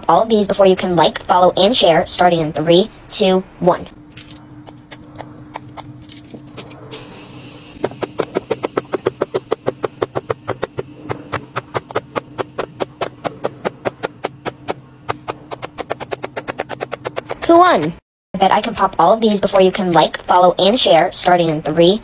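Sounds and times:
pop-it fidget bubbles popping: 0:07.8 - 0:17.5.

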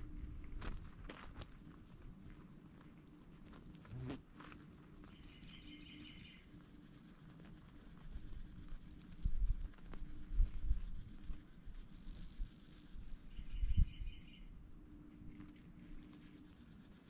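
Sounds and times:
faint high insect chirping: 0:05.0 - 0:17.0.

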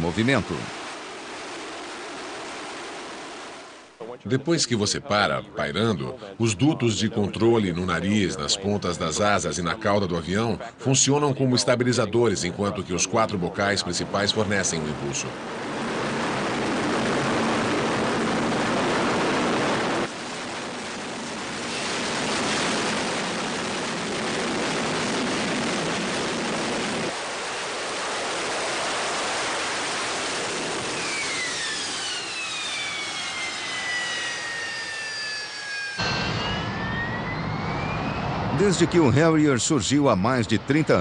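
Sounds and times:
loud jet engine roar: 0:13.2 - 0:41.0
high whine: 0:28.5 - 0:40.9.

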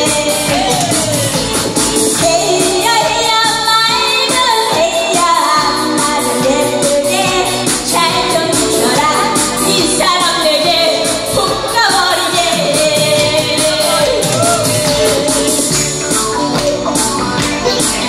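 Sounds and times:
backing music: 0:00.0 - 0:18.0
woman singing into microphone: 0:00.0 - 0:18.0.

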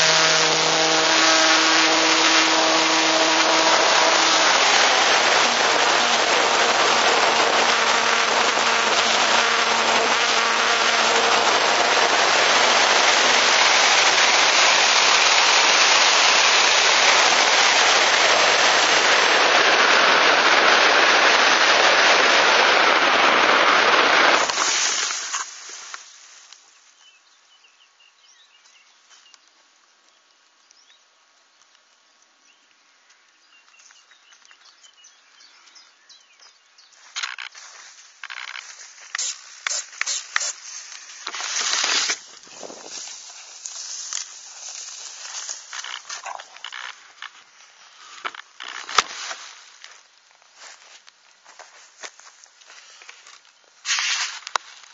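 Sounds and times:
rushing wind: 0:00.0 - 0:26.3, 0:39.2 - 0:46.9
faint steady hum: 0:00.0 - 0:48.6.

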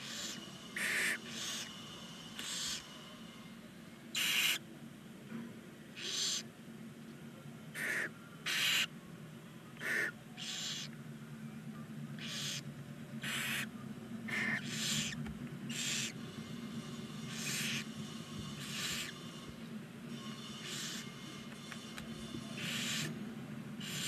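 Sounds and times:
owl chicks hissing calls: 0:00.0 - 0:03.0, 0:04.1 - 0:04.7, 0:05.9 - 0:06.5, 0:07.7 - 0:08.9, 0:09.8 - 0:11.0, 0:12.2 - 0:13.7, 0:14.3 - 0:19.5, 0:20.6 - 0:21.7, 0:22.5 - 0:23.2, 0:23.8 - 0:24.0
steady low hum: 0:00.0 - 0:24.0.

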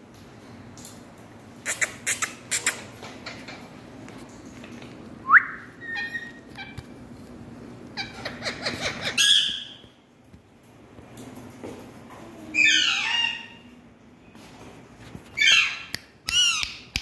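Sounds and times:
parakeets squawking: 0:08.0 - 0:09.8.

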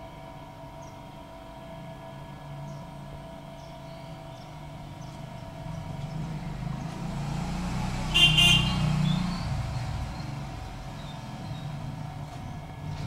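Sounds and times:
vehicle passing rumble: 0:02.4 - 0:13.0
short horn toot: 0:08.1 - 0:08.9.

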